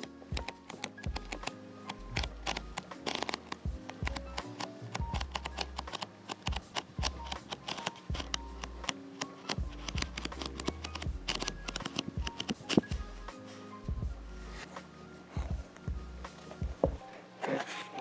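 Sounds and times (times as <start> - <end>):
paperback pages flipping: 0.0 - 12.9
background music with low bass: 0.0 - 18.0.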